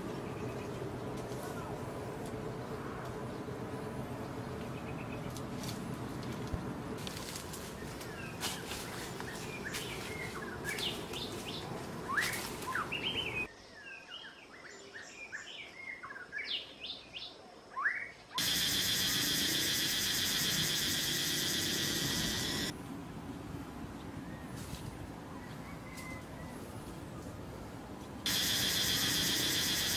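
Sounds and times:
rustling background: 5.2 - 13.5, 22.6 - 28.3
high-pitched buzzing drone: 18.4 - 22.7, 28.3 - 29.9.

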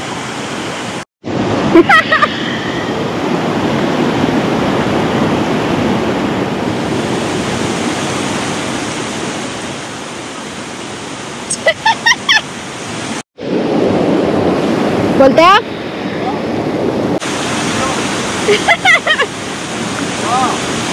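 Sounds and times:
stream rushing over rocks: 0.0 - 20.9.

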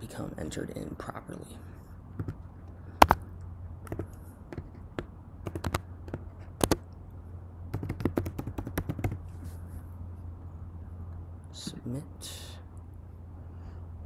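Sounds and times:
low steady hum: 0.0 - 14.0
keyboard keys clicking: 3.9 - 6.8, 7.7 - 9.2.

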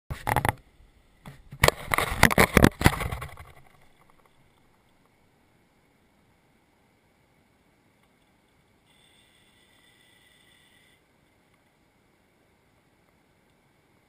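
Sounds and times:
camera knocks and rubbing scrapes: 0.1 - 0.6, 1.3 - 4.2
faint steady hiss: 0.1 - 14.0.

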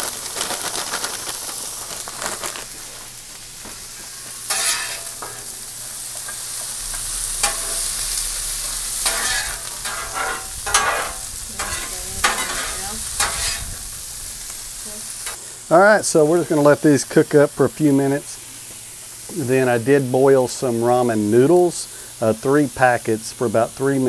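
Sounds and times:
vegetables sizzling in oil: 0.0 - 24.0
metal spatula scraping and tapping: 4.5 - 5.6, 6.3 - 8.3, 9.0 - 13.7.

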